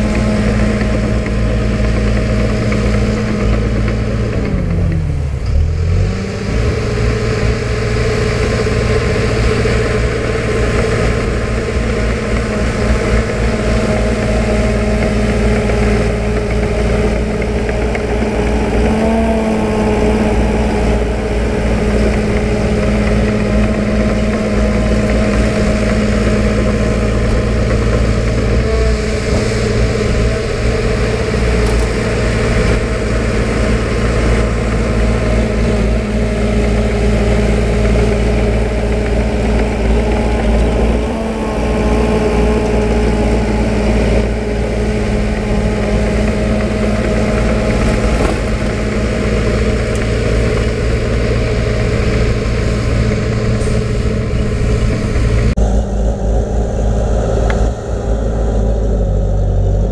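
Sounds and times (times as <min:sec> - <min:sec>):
diesel earthmover engine running: 0:00.0 - 0:59.9.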